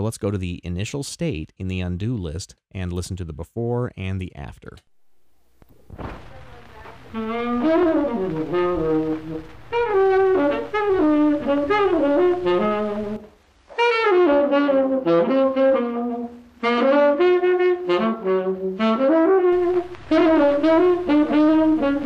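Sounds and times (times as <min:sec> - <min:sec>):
low tape hum and noise: 0:00.0 - 0:22.0
solo saxophone: 0:07.0 - 0:22.0.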